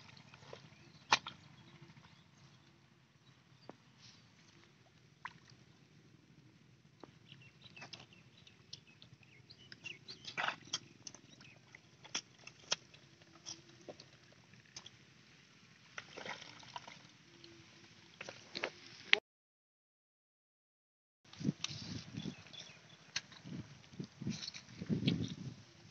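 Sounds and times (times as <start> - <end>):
short clicks and wet crackles: 7.7 - 15.0.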